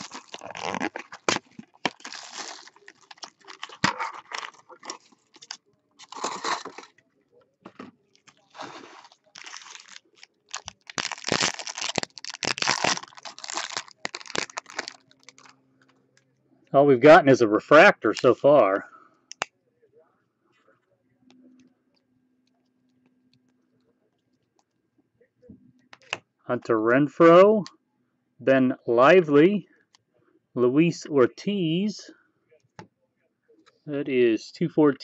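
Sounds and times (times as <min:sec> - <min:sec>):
cardboard box being opened: 0:00.0 - 0:06.9, 0:08.3 - 0:10.0
foil packs crinkling and tearing: 0:00.0 - 0:06.9, 0:08.2 - 0:15.5.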